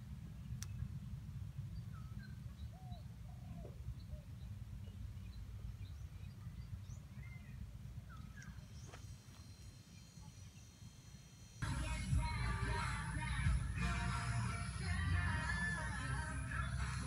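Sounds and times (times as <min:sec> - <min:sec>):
music: 0:11.6 - 0:17.0.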